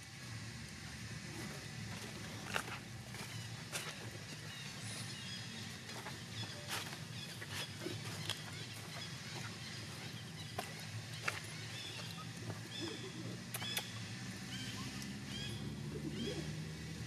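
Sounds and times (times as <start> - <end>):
steady low hum: 0.0 - 17.0
sharp clicks: 13.5 - 14.0.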